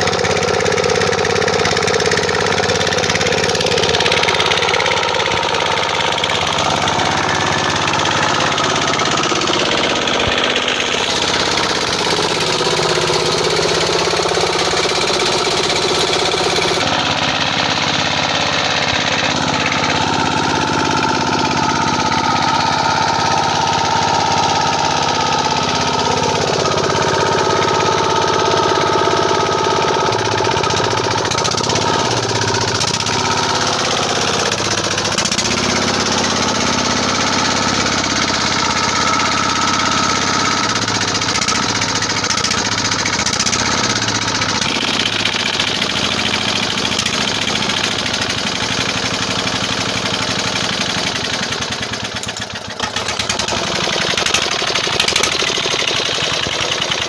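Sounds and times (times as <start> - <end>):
diesel engine knocking: 0.0 - 57.0.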